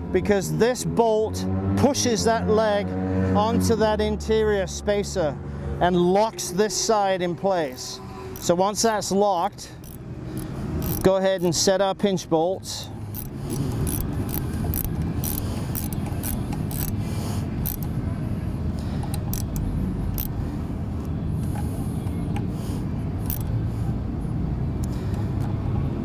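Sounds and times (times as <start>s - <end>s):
ratchet wrench clicking: 7.7s - 8.6s, 9.4s - 11.6s, 13.0s - 18.0s, 18.9s - 20.4s, 23.2s - 23.6s.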